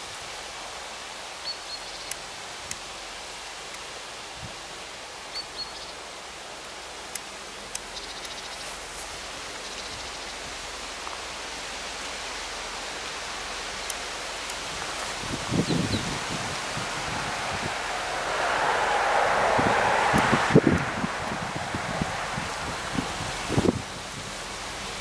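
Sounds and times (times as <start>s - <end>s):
wind rustling through trees: 0.0s - 25.0s
faint clicks: 7.1s - 8.6s.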